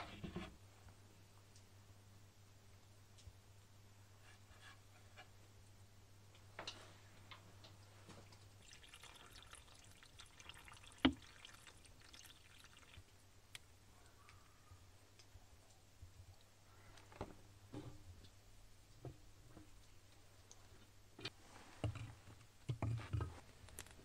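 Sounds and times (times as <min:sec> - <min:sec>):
water pouring into pan: 0:08.6 - 0:13.1.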